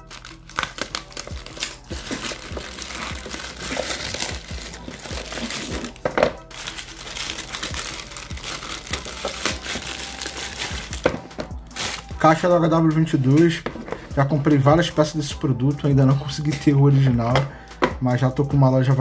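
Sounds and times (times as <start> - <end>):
plastic mailer bag crinkling: 0.0 - 12.2
cardboard box pulled out: 0.2 - 11.0.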